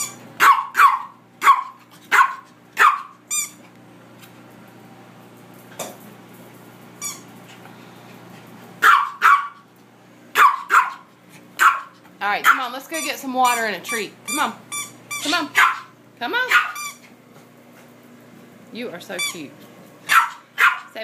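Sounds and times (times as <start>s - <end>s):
small dog barking: 0.4s - 3.2s, 8.8s - 9.7s, 10.3s - 12.7s, 15.5s - 16.8s, 20.1s - 21.0s.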